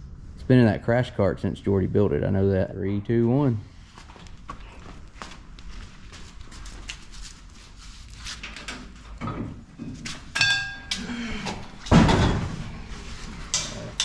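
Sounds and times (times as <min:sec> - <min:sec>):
footsteps shuffling on concrete: 0:03.7 - 0:08.4
ringing metal clank: 0:10.3 - 0:11.2.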